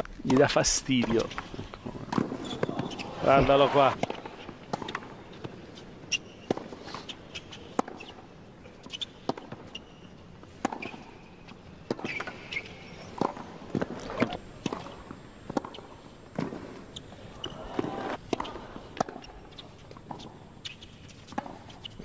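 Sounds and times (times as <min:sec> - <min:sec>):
shoes squeaking on court: 0:00.2 - 0:22.0
tennis ball bouncing: 0:06.4 - 0:08.2, 0:08.8 - 0:09.8, 0:10.6 - 0:11.2, 0:11.9 - 0:22.0
racket striking ball: 0:11.9 - 0:22.0.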